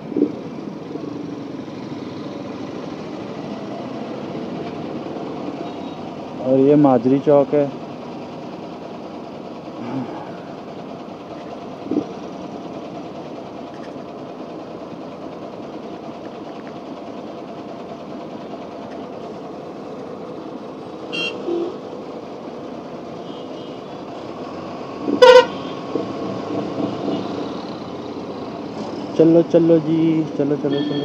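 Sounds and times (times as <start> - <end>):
idling traffic hum: 0.0 - 31.0
vehicle horn: 21.1 - 21.8, 25.2 - 25.8, 30.7 - 31.0.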